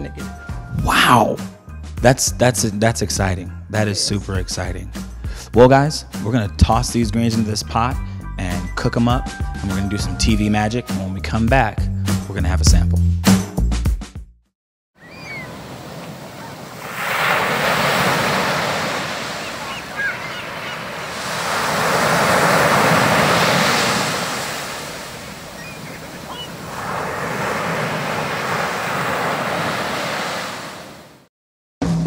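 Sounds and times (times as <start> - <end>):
waves breaking on beach: 15.0 - 31.3.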